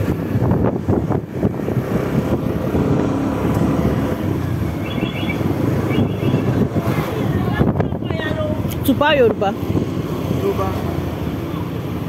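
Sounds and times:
vehicle engine rumble: 0.0s - 12.0s
wind noise on microphone: 0.0s - 12.0s.

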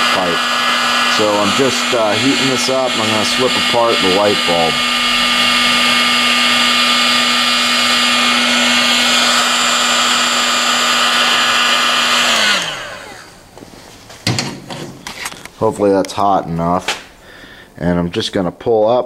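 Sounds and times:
heat gun fan hissing: 0.0s - 13.5s.

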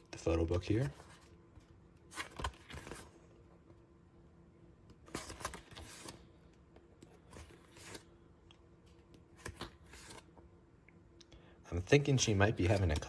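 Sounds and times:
faint steady hum: 0.0s - 13.0s
book pages turning: 0.5s - 3.8s, 4.9s - 10.4s, 12.2s - 13.0s.

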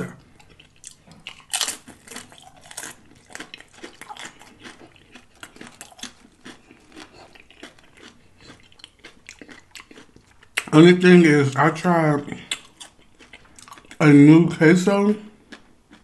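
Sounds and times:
chip being chewed: 0.0s - 10.8s, 12.4s - 14.1s, 15.4s - 16.0s
crunching bite into chip: 0.6s - 10.7s.

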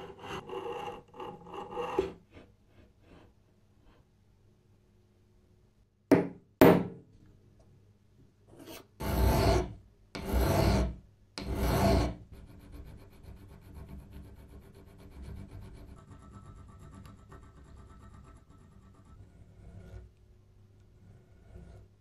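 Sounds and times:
metal file rasping: 0.0s - 3.3s, 8.6s - 20.1s, 21.0s - 21.9s.

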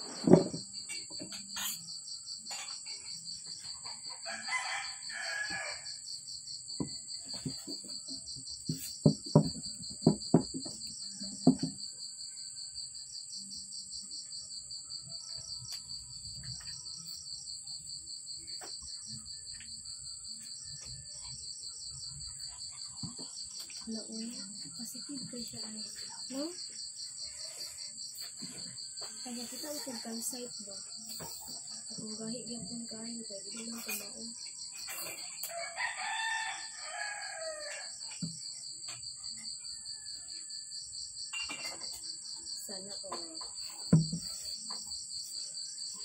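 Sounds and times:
crickets chirping: 0.0s - 46.0s
soft knock: 0.2s - 0.6s, 8.7s - 11.8s, 43.9s - 44.4s
rooster crowing: 4.0s - 6.0s, 35.4s - 38.0s.

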